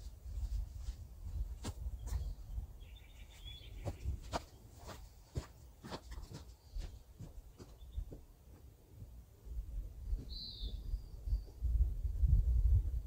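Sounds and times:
wind rumble on microphone: 0:00.0 - 0:04.4, 0:09.4 - 0:13.0
bird chirp: 0:02.0 - 0:05.0, 0:06.6 - 0:08.2, 0:10.1 - 0:11.8.

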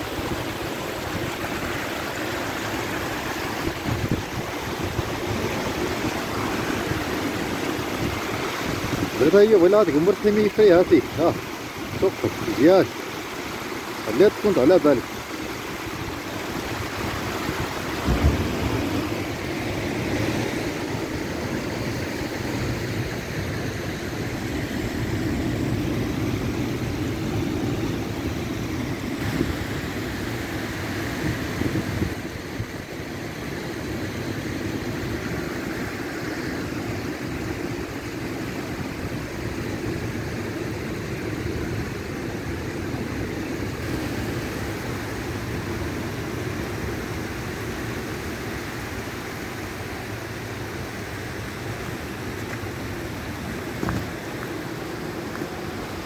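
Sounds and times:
rough surf rumble: 0:00.0 - 0:56.0.

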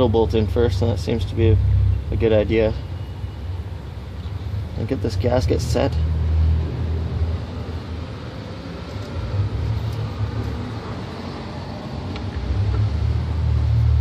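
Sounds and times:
steady low rumble: 0:03.5 - 0:14.0.

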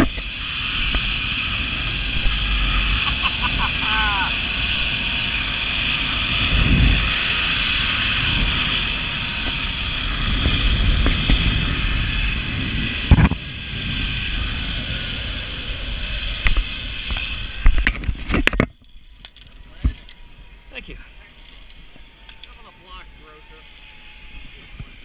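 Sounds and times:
wind rumble on microphone: 0:00.0 - 0:18.9
zipline pulleys whirring on cable: 0:00.0 - 0:25.0.

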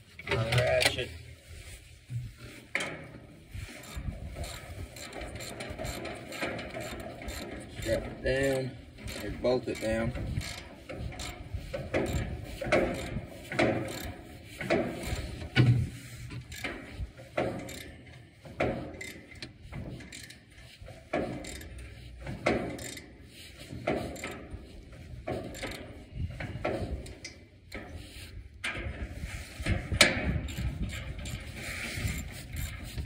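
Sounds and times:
ratchet wrench clicking: 0:03.8 - 0:11.4, 0:12.0 - 0:12.2, 0:13.9 - 0:14.1, 0:17.6 - 0:17.9, 0:19.0 - 0:20.4, 0:21.4 - 0:21.9, 0:22.7 - 0:23.1, 0:25.5 - 0:25.8.

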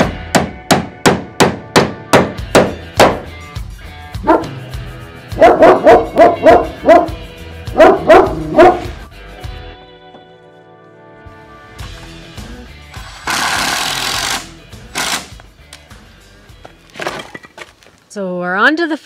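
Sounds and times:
sharp hammer strikes: 0:00.0 - 0:03.2
dog barking: 0:04.2 - 0:04.6, 0:05.4 - 0:07.2, 0:07.8 - 0:09.0.

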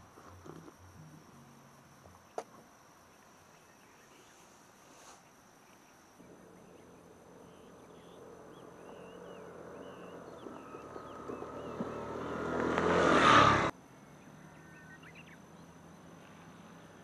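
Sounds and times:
faint bird or insect chirps: 0:00.0 - 0:12.6, 0:13.7 - 0:17.0
motorcycle engine approaching: 0:06.2 - 0:15.6.

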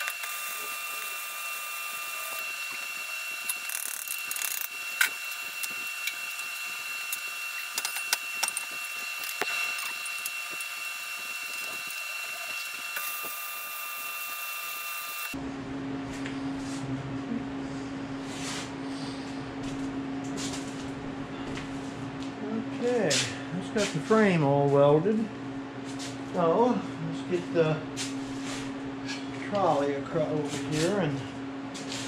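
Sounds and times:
welding arc crackling: 0:00.0 - 0:15.4
steady low hum: 0:15.3 - 0:32.0.

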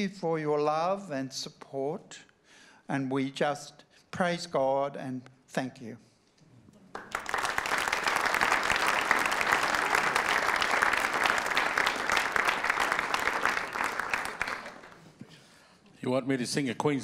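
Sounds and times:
audience applauding: 0:06.9 - 0:15.2.

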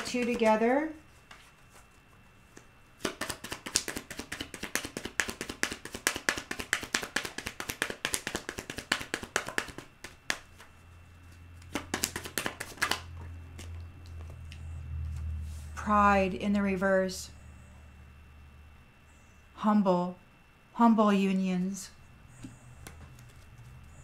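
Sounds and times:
cards being shuffled: 0:01.2 - 0:14.4, 0:22.4 - 0:23.9.

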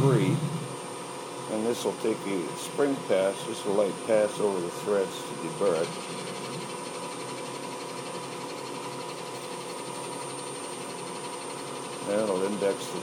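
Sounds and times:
lathe spindle humming: 0:05.3 - 0:12.5.

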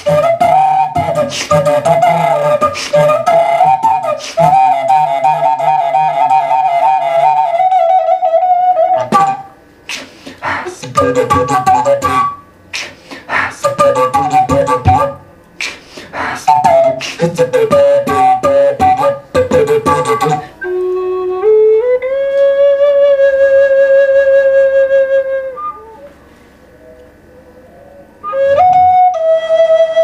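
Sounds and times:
beatboxing: 0:00.0 - 0:07.5, 0:08.8 - 0:20.9
wooden flute notes: 0:00.0 - 0:10.1, 0:10.8 - 0:12.9, 0:13.6 - 0:15.8, 0:16.4 - 0:30.0.

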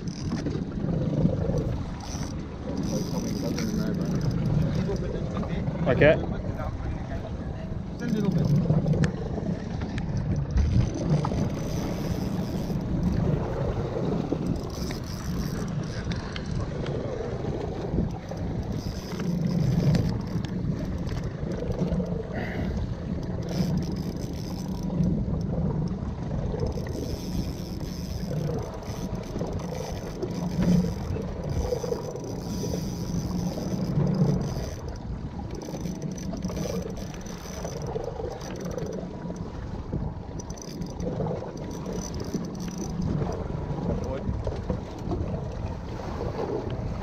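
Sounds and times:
boat motor and water rumble: 0:00.0 - 0:47.0
faint clicks: 0:01.5 - 0:05.5, 0:14.3 - 0:17.0, 0:17.6 - 0:26.0, 0:26.6 - 0:39.5, 0:40.3 - 0:45.2.

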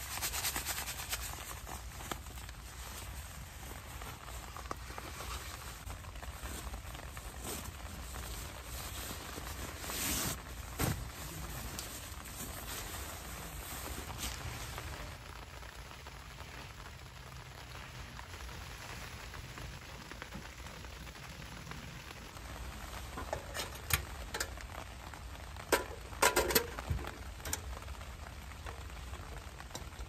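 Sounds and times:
rain patter: 0:00.0 - 0:30.0
clicks and knocks of handling: 0:25.7 - 0:27.7.

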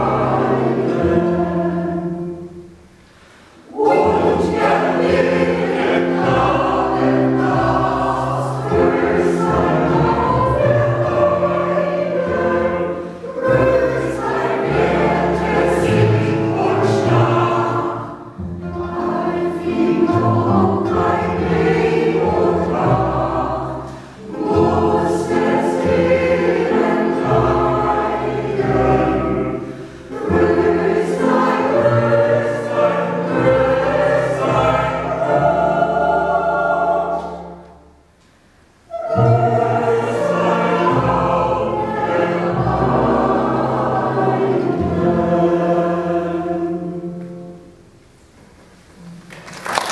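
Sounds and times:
mixed choir singing: 0:00.0 - 0:02.8, 0:03.6 - 0:38.1, 0:38.9 - 0:47.7
mandolin orchestra: 0:00.0 - 0:36.3.

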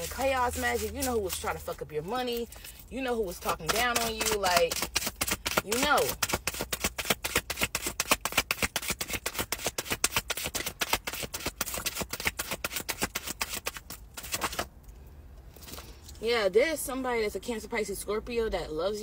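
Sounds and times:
cards being shuffled: 0:03.4 - 0:14.7.

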